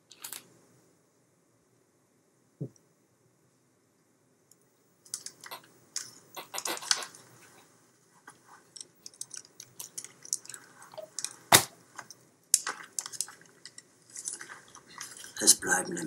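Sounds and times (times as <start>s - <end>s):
handling clicks and crackles: 0.0s - 0.6s, 4.5s - 15.4s.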